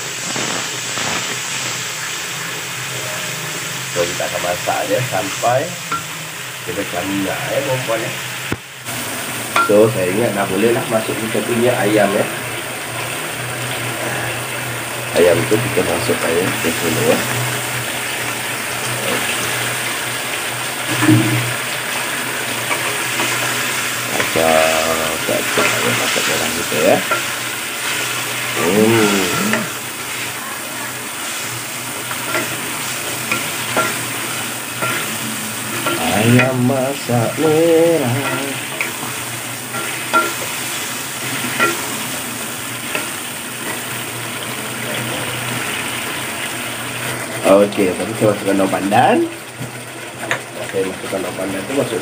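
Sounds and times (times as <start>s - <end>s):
sauce bubbling and sizzling in a wok: 0.0s - 52.0s
wooden spatula scraping pan: 31.2s - 42.2s.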